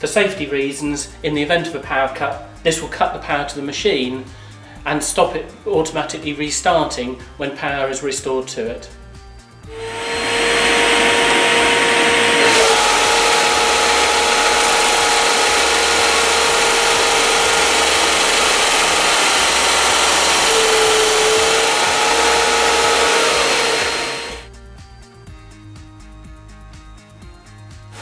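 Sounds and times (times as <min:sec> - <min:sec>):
disc sander whining: 0:09.7 - 0:24.5
wood sanding hiss: 0:09.7 - 0:24.5.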